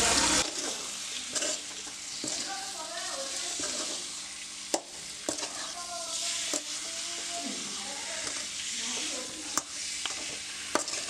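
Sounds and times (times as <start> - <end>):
prawns sizzling in a wok: 0.0 - 11.0.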